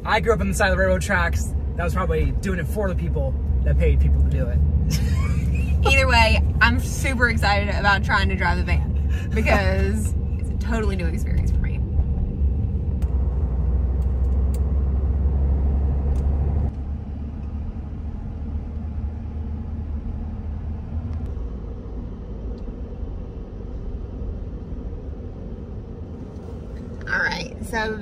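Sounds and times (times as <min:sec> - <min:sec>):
engine and road rumble in cab: 0:00.0 - 0:28.0.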